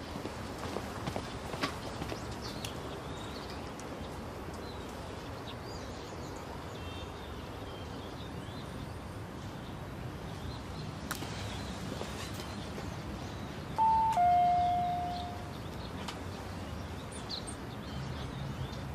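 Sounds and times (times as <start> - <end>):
background hiss: 0.0 - 18.2
faint bird chirps: 13.8 - 15.8.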